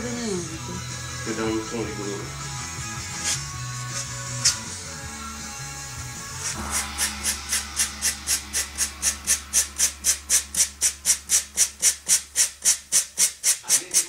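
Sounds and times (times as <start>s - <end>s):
hand rubbing strokes: 6.2s - 14.0s.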